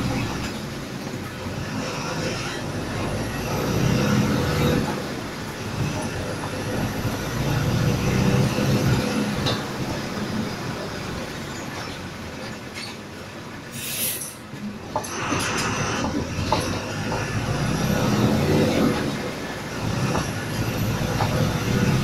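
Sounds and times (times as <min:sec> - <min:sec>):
bus engine running: 0:00.0 - 0:22.0
road noise: 0:00.0 - 0:22.0
short hiss: 0:13.7 - 0:14.4.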